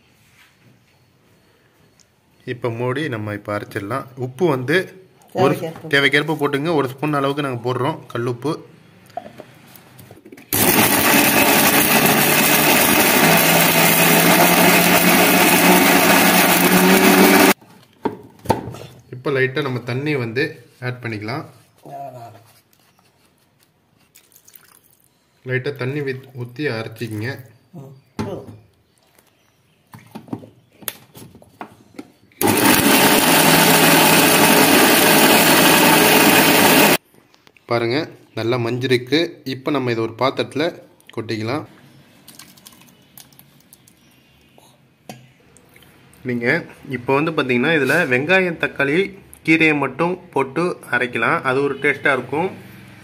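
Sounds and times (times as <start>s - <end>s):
mixer grinder motor: 10.6s - 17.6s, 32.4s - 37.0s.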